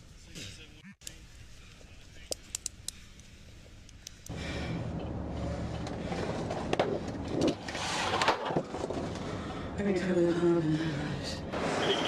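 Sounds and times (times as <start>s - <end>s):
car engine and road noise: 4.3s - 12.0s.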